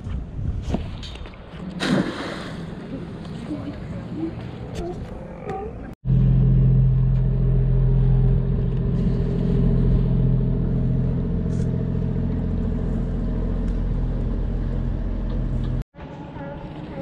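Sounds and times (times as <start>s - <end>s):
boat diesel engine drone: 5.8s - 17.0s.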